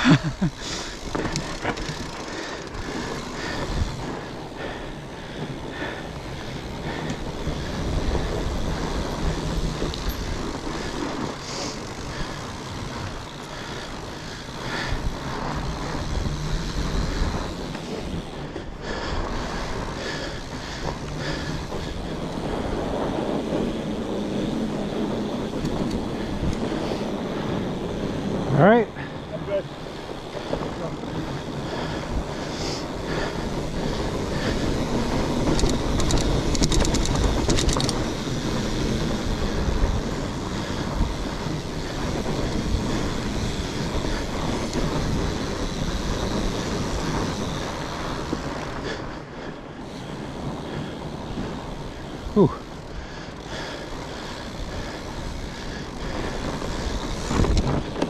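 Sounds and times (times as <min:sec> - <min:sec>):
bike clicks and rattles: 0:00.0 - 0:58.0
tyres rolling rumble: 0:00.0 - 0:58.0
wind buffeting microphone: 0:00.0 - 0:58.0.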